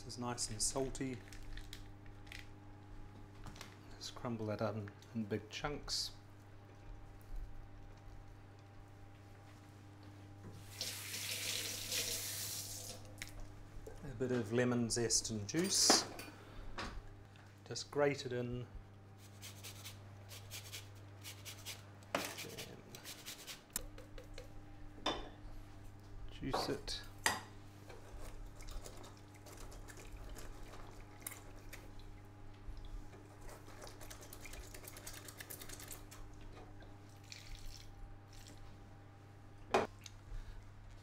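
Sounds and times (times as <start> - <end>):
cheese crumbling soft patter: 0.8 - 3.9.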